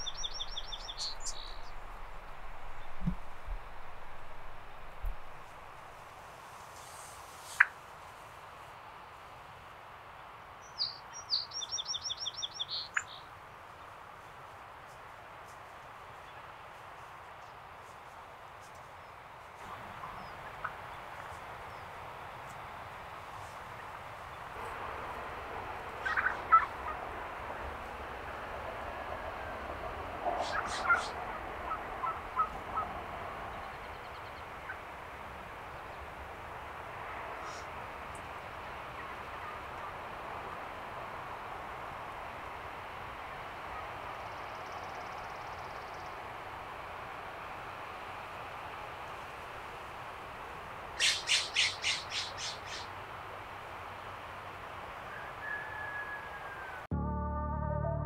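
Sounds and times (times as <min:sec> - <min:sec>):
wild turkeys calling: 0:00.0 - 0:06.0, 0:25.9 - 0:27.9, 0:30.3 - 0:33.0, 0:33.6 - 0:34.9, 0:51.0 - 0:52.9, 0:55.1 - 0:56.9
songbird singing: 0:00.0 - 0:06.2, 0:10.6 - 0:14.0, 0:17.4 - 0:24.8, 0:30.2 - 0:36.2, 0:43.3 - 0:46.4, 0:51.0 - 0:53.1, 0:55.0 - 0:56.9
faint steady hiss: 0:00.0 - 0:55.4
faint background noise: 0:00.0 - 0:56.9.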